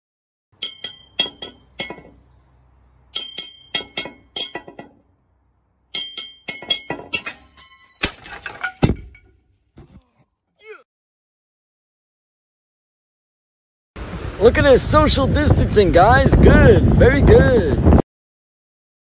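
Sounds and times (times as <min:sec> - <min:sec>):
knife clinking glass bottle: 0:00.6 - 0:02.2, 0:03.2 - 0:05.0, 0:05.9 - 0:09.3.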